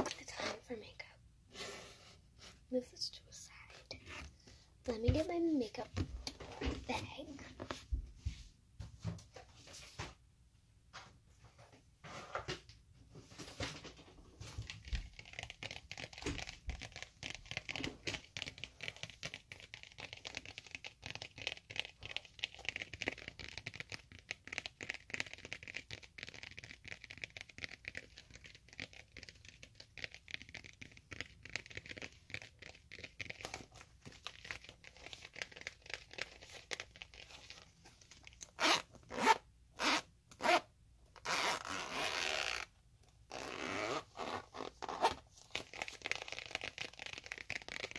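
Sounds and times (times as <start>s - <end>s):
makeup bag rustling and clicking: 13.4s - 39.4s
zipper pulled: 14.7s - 42.7s, 43.3s - 47.9s.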